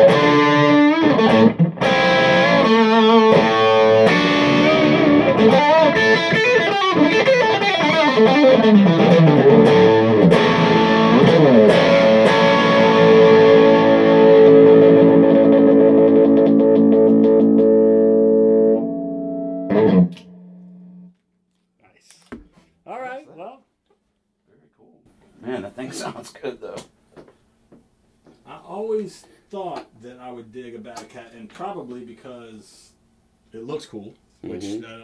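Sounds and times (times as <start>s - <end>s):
electric guitar through tube amp: 0.0s - 21.1s.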